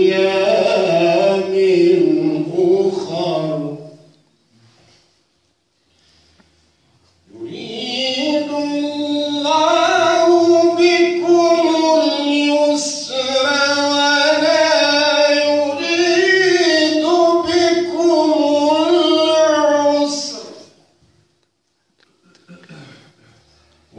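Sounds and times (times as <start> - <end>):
man chanting into microphone: 0.0 - 4.1, 7.3 - 20.8.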